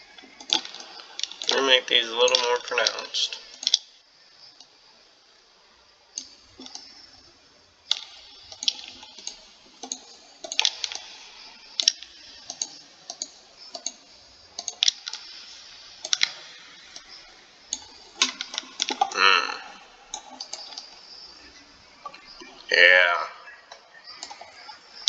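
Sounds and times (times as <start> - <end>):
computer mouse clicks: 0.2 - 1.6, 2.3 - 3.9, 6.1 - 7.2, 7.9 - 19.2, 20.1 - 22.7, 23.7 - 25.0.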